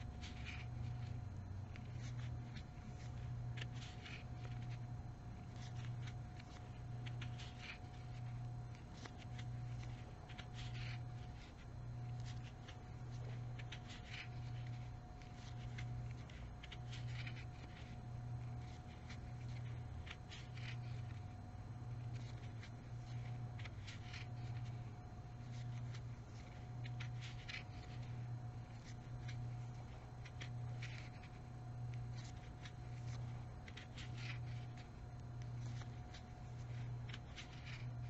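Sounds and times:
crochet hook scratching yarn: 0:00.0 - 0:38.0
low hum: 0:00.0 - 0:38.0.

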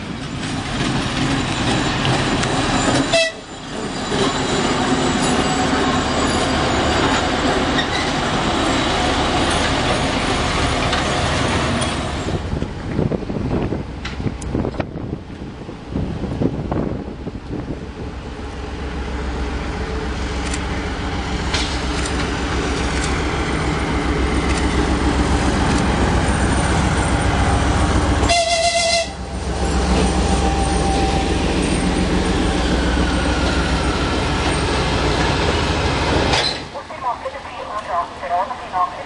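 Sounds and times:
diesel locomotive engine drone: 0:00.0 - 0:39.0
train horn blast: 0:03.1 - 0:03.5, 0:28.2 - 0:29.3.

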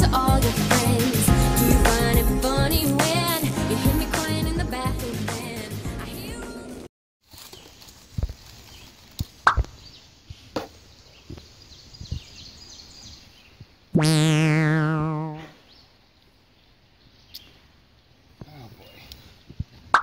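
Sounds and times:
comedic buzz and falling whistle: 0:14.0 - 0:15.5.

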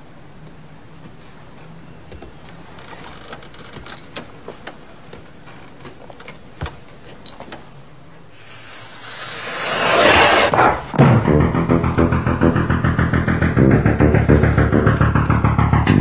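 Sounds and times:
rush of noise: 0:08.4 - 0:15.7
low hum: 0:08.4 - 0:16.0.

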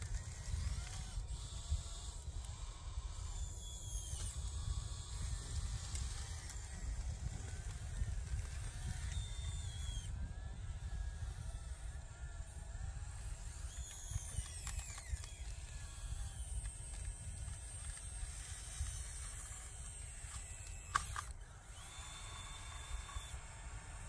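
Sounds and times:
electric motors whining: 0:00.0 - 0:24.0
sharp click: 0:20.3 - 0:21.4.

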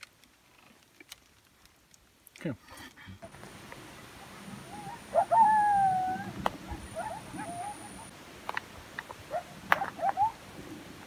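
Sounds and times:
animal call falling slightly: 0:04.2 - 0:08.1.

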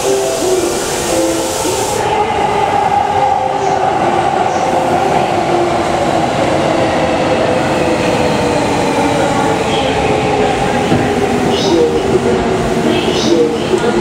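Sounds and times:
electric train running: 0:00.0 - 0:14.0.

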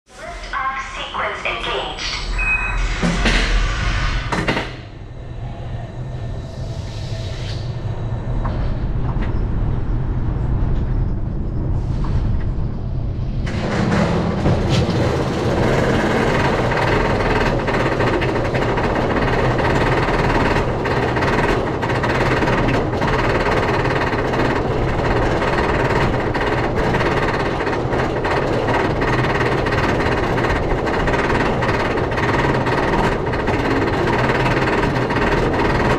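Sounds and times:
roller coaster train rumbling: 0:00.1 - 0:35.9
roller coaster clunks: 0:08.0 - 0:35.9
lift hill mechanical clatter: 0:08.3 - 0:35.9.

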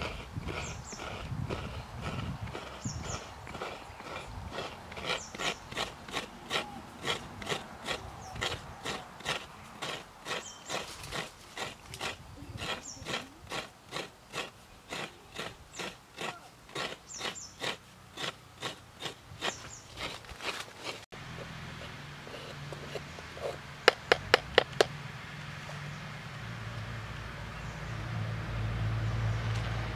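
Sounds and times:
coconut being grated by hand: 0:00.0 - 0:21.1.

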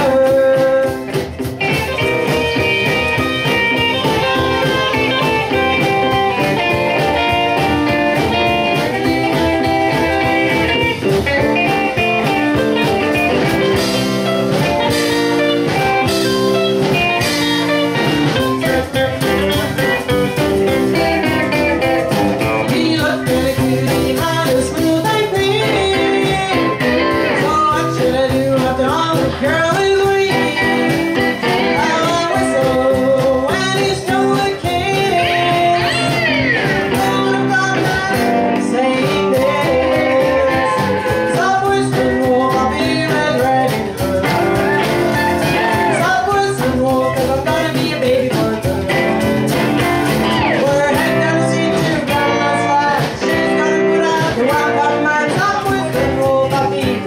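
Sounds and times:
woman singing: 0:00.0 - 0:01.3, 0:16.9 - 0:20.2, 0:20.9 - 0:57.0
drum kit: 0:00.0 - 0:57.0
electric guitars: 0:00.0 - 0:57.0
upright double bass: 0:00.0 - 0:57.0.

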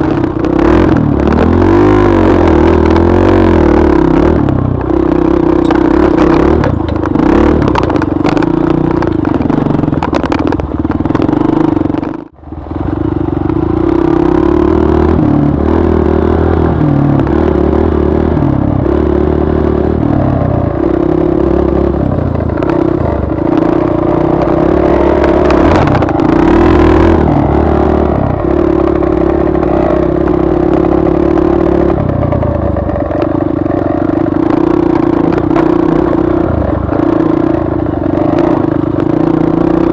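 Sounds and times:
dirt bike engine revving: 0:00.0 - 0:12.2, 0:12.8 - 0:39.9
bike knocks and rattles: 0:05.6 - 0:12.4.

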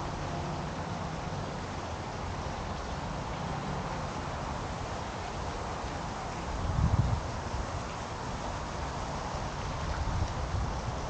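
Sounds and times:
steady hiss: 0:00.0 - 0:11.0
wind buffeting microphone: 0:06.4 - 0:11.0.

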